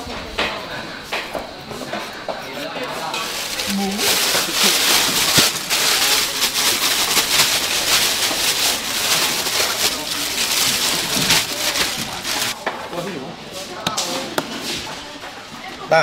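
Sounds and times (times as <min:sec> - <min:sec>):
plastic bag crinkling: 0:02.9 - 0:12.6.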